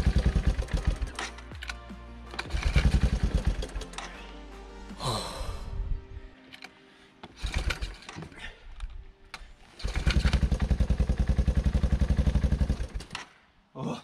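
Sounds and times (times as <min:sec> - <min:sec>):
quad engine starting and idling: 0:00.0 - 0:04.3, 0:07.4 - 0:08.2, 0:09.8 - 0:13.3.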